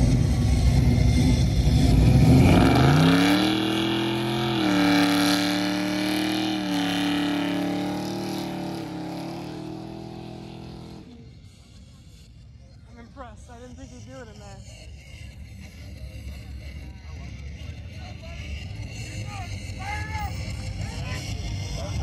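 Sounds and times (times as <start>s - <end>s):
car engine revving: 0.0s - 11.3s.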